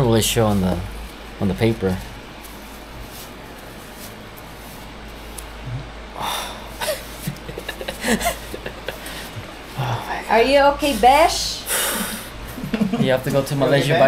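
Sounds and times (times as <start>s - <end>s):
man gasping and whimpering: 5.7s - 7.2s
man breathing sharply: 6.2s - 7.2s, 11.7s - 12.4s.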